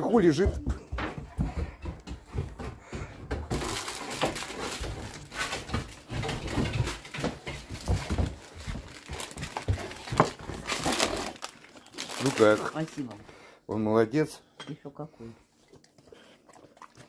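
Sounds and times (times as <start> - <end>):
knocks and thumps: 0.0 - 11.2
plastic bag rustling and crackling: 3.5 - 13.2.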